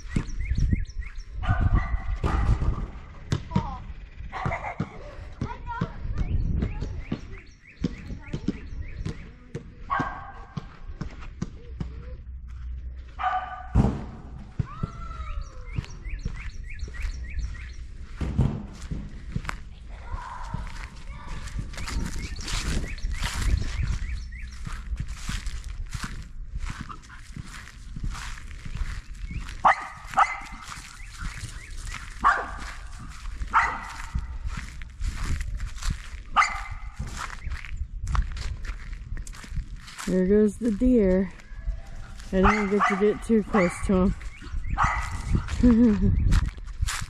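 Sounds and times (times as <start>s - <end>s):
dog barking: 1.4s - 2.7s, 9.9s - 10.7s, 13.2s - 13.8s, 29.6s - 30.8s, 32.2s - 32.9s, 33.5s - 34.3s, 36.3s - 37.0s, 41.9s - 43.9s, 44.7s - 45.5s
loud thump: 13.7s - 14.8s, 18.2s - 19.2s
soft steps over grass and leaves: 18.8s - 44.4s, 45.0s - 47.0s.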